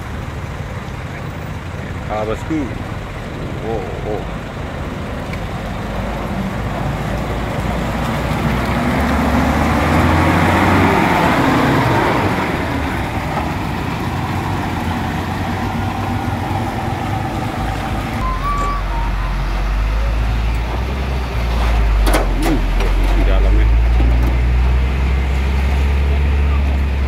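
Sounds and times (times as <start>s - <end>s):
coach engine running: 0.0s - 27.0s
tyres through water: 0.0s - 27.0s.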